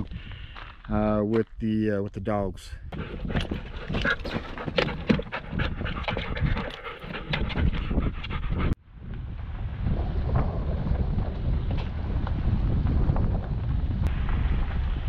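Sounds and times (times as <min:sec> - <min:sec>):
dogs panting: 0:02.9 - 0:08.8
truck wind and road noise: 0:02.9 - 0:15.0
paws clicking and scuffing: 0:03.0 - 0:08.8.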